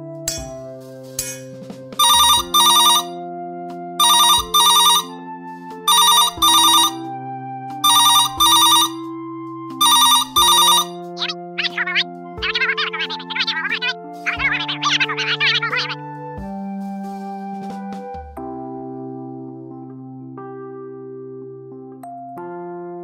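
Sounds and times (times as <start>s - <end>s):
light background music: 0.0s - 20.6s
telephone double ring: 2.0s - 3.1s, 4.0s - 5.1s, 5.9s - 7.0s, 7.8s - 9.0s, 9.8s - 11.1s.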